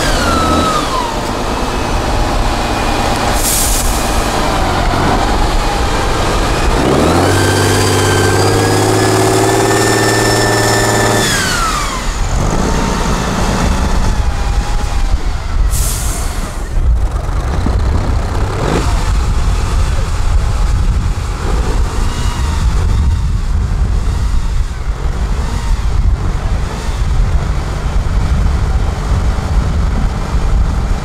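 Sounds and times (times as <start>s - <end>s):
diesel truck engine revving: 0.0s - 31.0s
short hiss of air: 3.4s - 4.2s, 15.7s - 16.7s.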